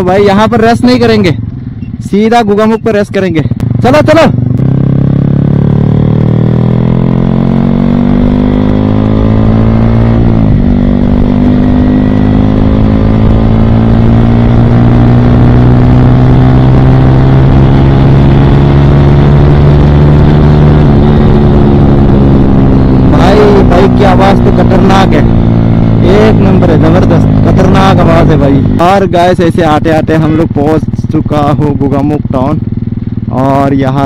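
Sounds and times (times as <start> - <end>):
motorcycle accelerating: 0.0 - 34.0.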